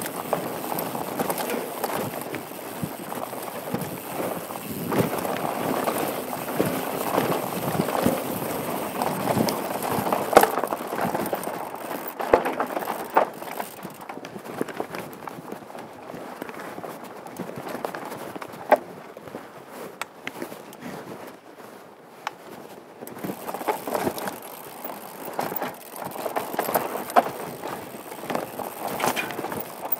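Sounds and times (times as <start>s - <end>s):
bike rattling over rocky trail: 0.0s - 19.4s, 22.4s - 29.9s
clunks from rocks: 25.8s - 29.9s.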